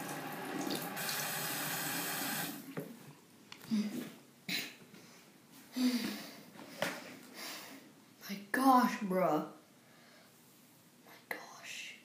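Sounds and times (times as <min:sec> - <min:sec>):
water running in a stream: 0:00.0 - 0:02.6.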